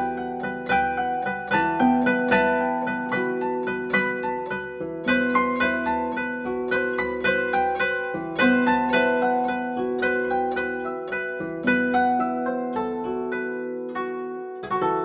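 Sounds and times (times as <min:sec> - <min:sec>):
gentle plucked melody: 0:00.0 - 0:15.0.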